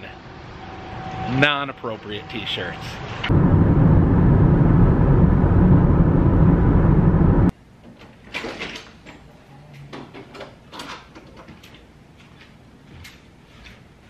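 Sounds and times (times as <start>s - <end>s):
car cabin road and engine noise: 3.3s - 7.5s.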